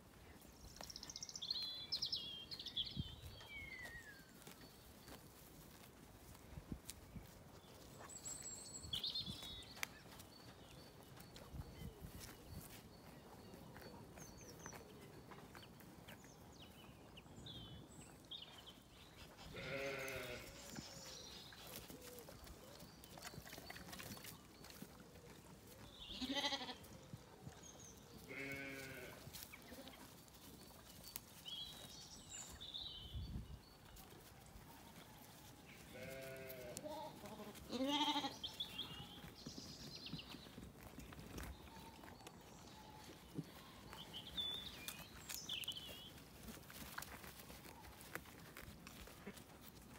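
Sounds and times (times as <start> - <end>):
lambs bleating: 19.5 - 20.6, 26.1 - 26.9, 28.2 - 29.9, 35.9 - 38.5.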